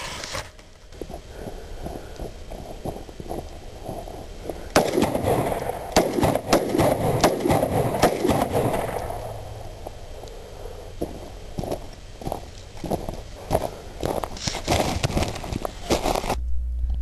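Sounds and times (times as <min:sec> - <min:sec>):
gunshots: 0:04.7 - 0:09.3.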